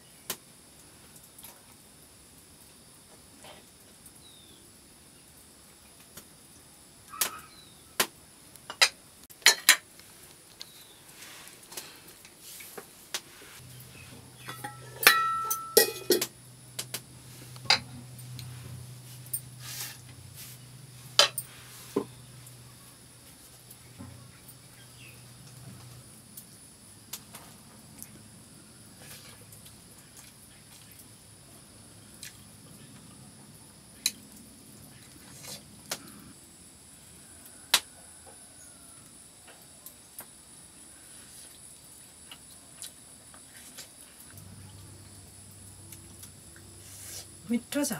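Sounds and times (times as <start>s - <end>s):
short metallic ring: 14.4s - 16.2s
steel dishes clinking: 14.4s - 16.3s
faint high-pitched hum: 44.2s - 47.9s.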